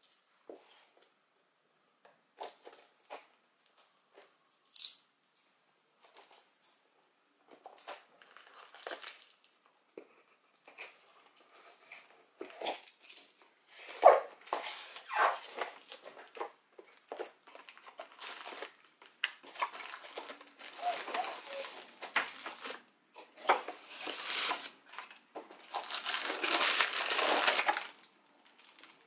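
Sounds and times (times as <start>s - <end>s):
cardboard crinkling: 7.6s - 9.6s, 10.7s - 29.0s.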